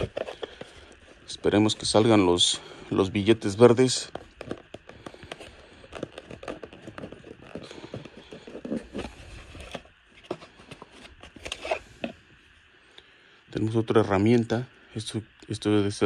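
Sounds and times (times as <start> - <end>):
tool case clicking and scraping: 0.0 - 0.8, 4.0 - 12.2
tools and cardboard shifting: 0.0 - 1.1, 3.9 - 12.2.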